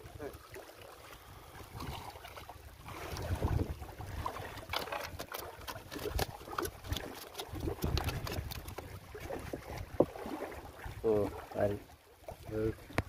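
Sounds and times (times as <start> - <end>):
gusty wind on microphone: 2.8 - 4.5, 7.5 - 10.0
fish handled in a mesh net: 3.0 - 10.6.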